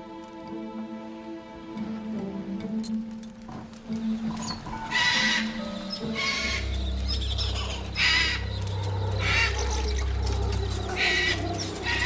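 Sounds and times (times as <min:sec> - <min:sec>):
steady low drone: 0:05.5 - 0:12.0
parrots squawking harshly: 0:07.6 - 0:08.4.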